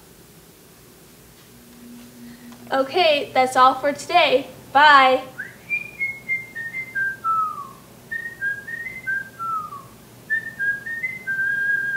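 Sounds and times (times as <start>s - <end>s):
person whistling a tune: 5.4s - 11.9s.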